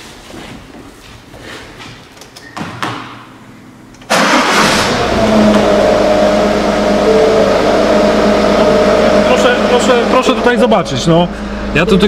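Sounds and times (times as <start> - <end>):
diesel engine starting and idling: 4.0 - 12.0.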